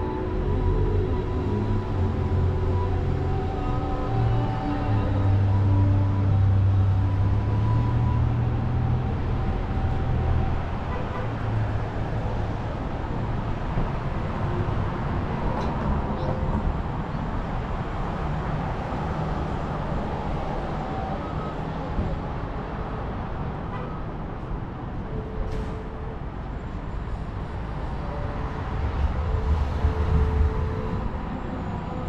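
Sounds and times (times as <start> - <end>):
faint violin and flute: 0.0 - 12.7, 19.5 - 24.2, 25.0 - 32.0
street traffic noise: 0.0 - 32.0.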